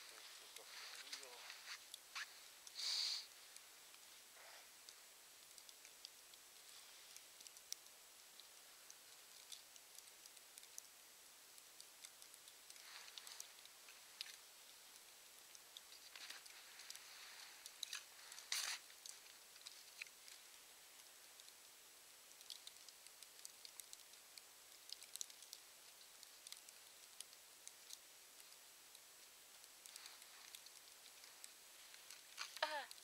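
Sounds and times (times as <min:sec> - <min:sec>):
soft rustles: 0:00.0 - 0:10.9, 0:11.9 - 0:21.5, 0:29.6 - 0:33.0
faint ticks: 0:00.0 - 0:33.0.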